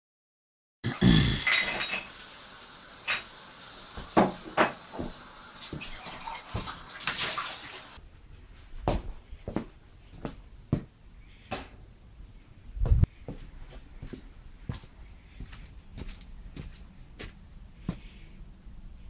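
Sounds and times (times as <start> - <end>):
faint steady hiss: 0.9 - 19.0
kitchen items knocking and clinking: 4.0 - 5.2
footsteps on tile floor: 4.0 - 6.8, 8.5 - 10.9, 12.8 - 18.1.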